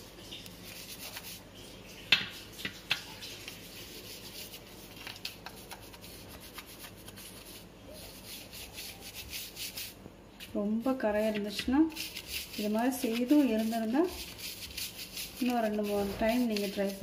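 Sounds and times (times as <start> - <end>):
toothbrush scrubbing wire mesh: 2.5 - 10.0, 11.2 - 17.0.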